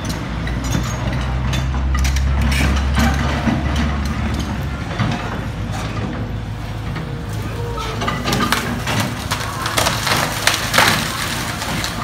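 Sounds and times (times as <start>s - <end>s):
machine knocks and clanks: 0.0s - 7.0s
excavator diesel engine: 0.0s - 12.0s.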